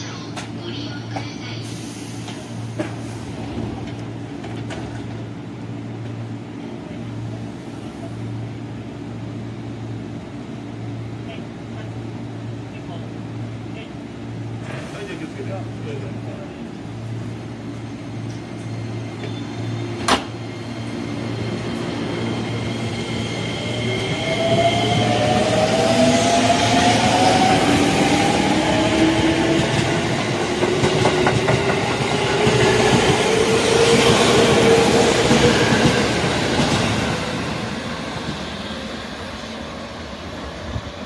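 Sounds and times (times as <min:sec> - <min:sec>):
train wheels on rails: 0:00.1 - 0:06.2, 0:18.2 - 0:41.0.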